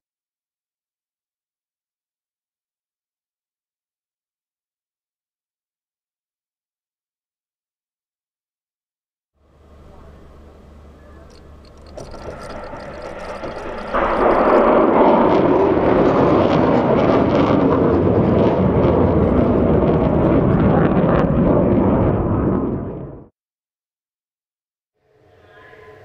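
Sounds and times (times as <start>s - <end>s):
rocket motor roaring: 11.3s - 23.2s.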